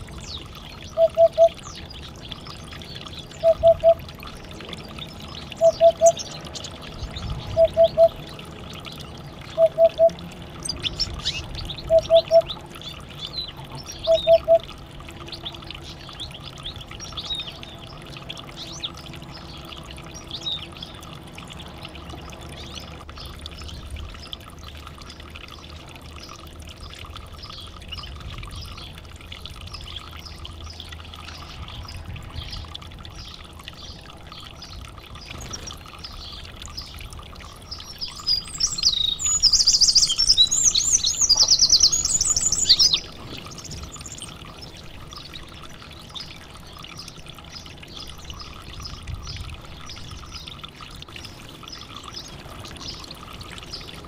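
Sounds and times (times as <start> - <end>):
canaries chirping: 38.6 - 43.0.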